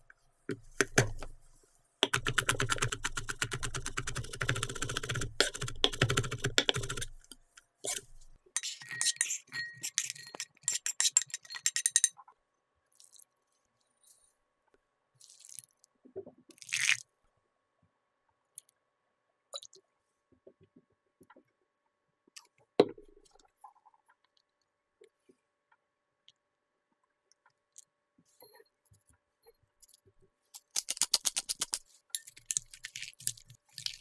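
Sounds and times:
spoon scraping ceramic plate: 0:07.8 - 0:12.1.

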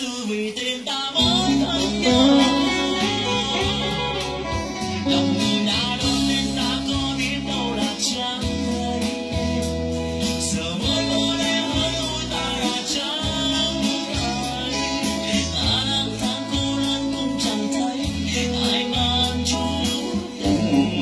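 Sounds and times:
steady beat: 0:01.2 - 0:16.8, 0:19.8 - 0:21.0
bass line: 0:01.2 - 0:21.0
electric guitar lead melody: 0:01.2 - 0:21.0.

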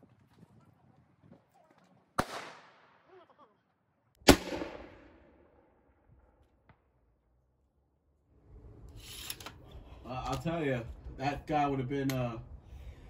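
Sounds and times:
musket shot echoing: 0:02.2 - 0:03.0, 0:04.2 - 0:05.7.

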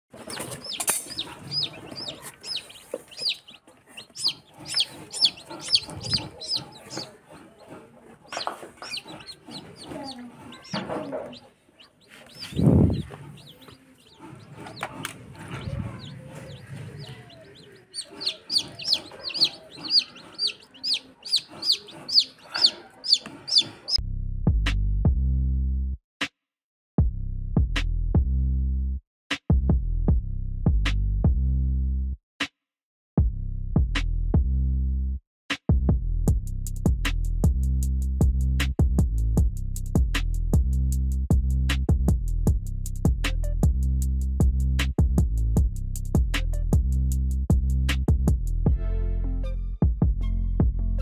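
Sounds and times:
chicks peeping: 0:00.2 - 0:24.0.

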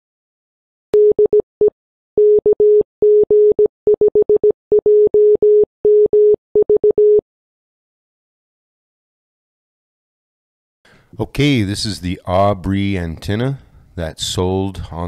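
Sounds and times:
morse code beeps: 0:02.2 - 0:07.2.

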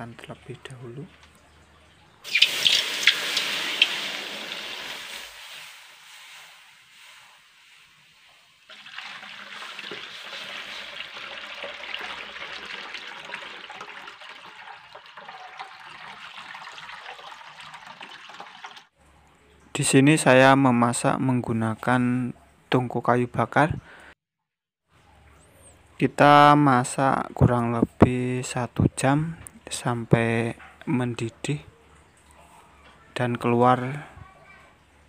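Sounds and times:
liquid pouring into metal wok: 0:02.3 - 0:06.5, 0:08.7 - 0:18.9.

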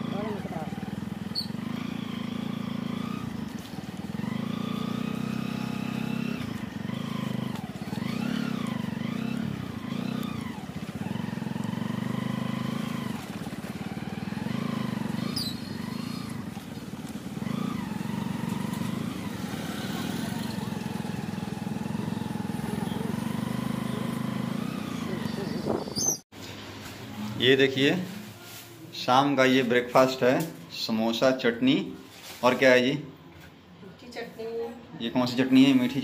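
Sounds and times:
motorcycle engine revving: 0:00.0 - 0:26.2.

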